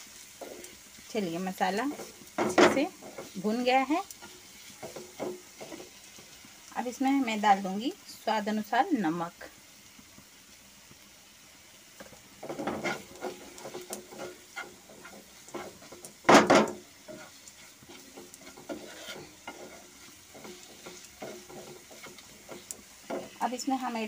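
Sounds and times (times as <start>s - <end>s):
masala sizzling: 0.0s - 24.0s
wooden spatula scraping pan: 0.2s - 6.4s, 12.0s - 23.7s.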